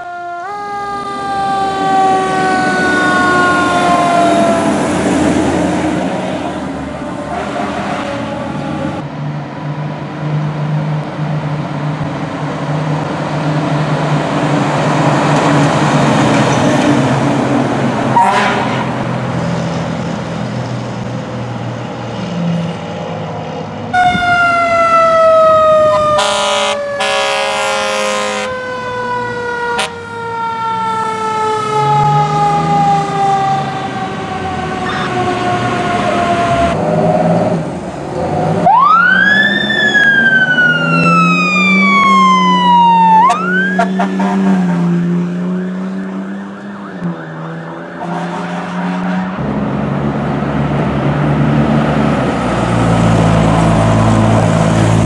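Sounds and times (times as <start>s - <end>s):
siren falling in pitch: 0.0s - 5.6s, 24.0s - 36.8s, 38.6s - 49.3s
diesel engines passing: 0.0s - 55.0s
loud horn blasts: 7.2s - 9.0s, 18.2s - 19.0s, 25.9s - 28.6s, 29.7s - 30.1s, 34.7s - 36.8s, 43.2s - 45.0s, 47.9s - 49.4s.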